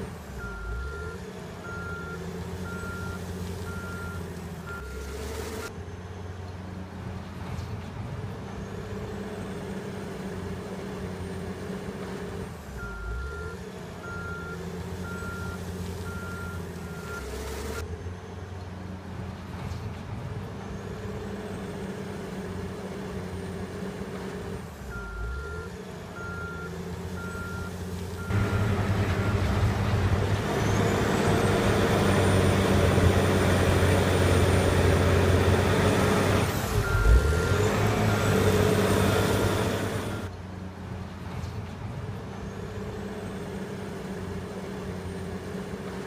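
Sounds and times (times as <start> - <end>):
diesel engine running: 0.0 - 46.0
reversing alarm beeping: 36.7 - 40.3.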